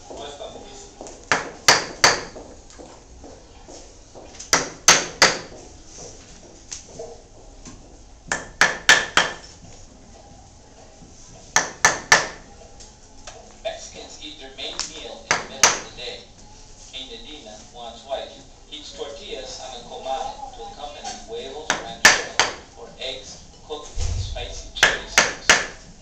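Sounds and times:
mallet striking chisel into wood: 4.5s - 5.5s, 8.3s - 9.4s, 11.6s - 12.4s.

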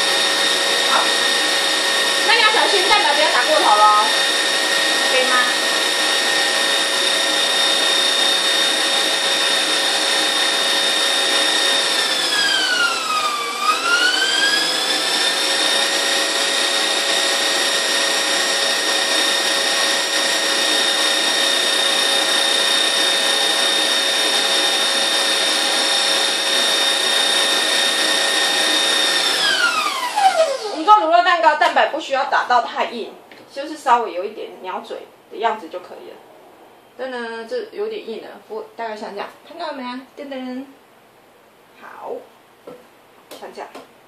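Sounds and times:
stand mixer motor whine: 0.0s - 30.8s.

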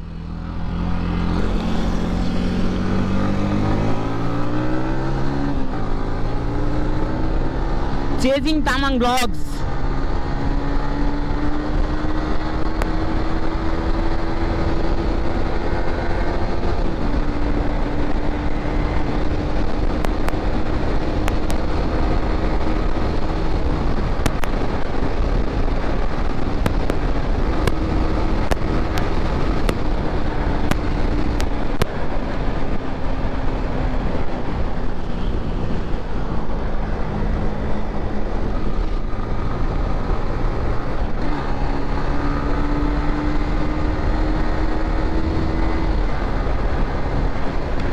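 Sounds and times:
wind rush on microphone: 0.0s - 47.9s.

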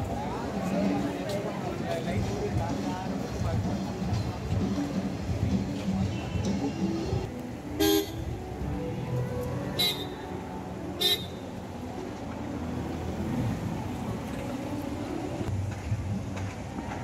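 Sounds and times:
road traffic: 0.0s - 17.0s
car horn toot: 7.8s - 8.2s, 9.8s - 10.2s, 11.0s - 11.4s.

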